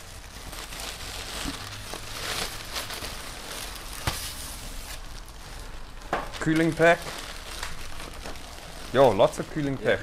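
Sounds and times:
packing paper crinkling and rustling: 0.0s - 10.0s.

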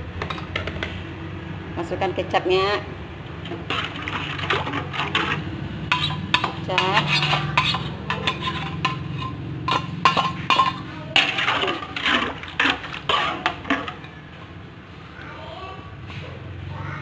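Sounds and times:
metal spatula scraping wok: 3.4s - 14.4s.

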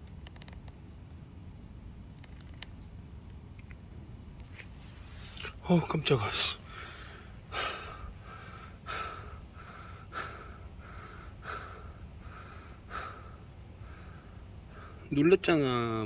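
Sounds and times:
slow breathing: 6.6s - 15.1s.

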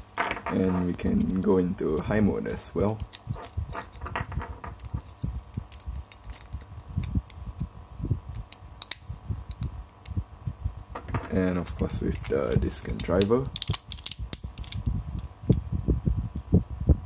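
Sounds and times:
plastic parts clicking and tapping: 11.0s - 15.3s.

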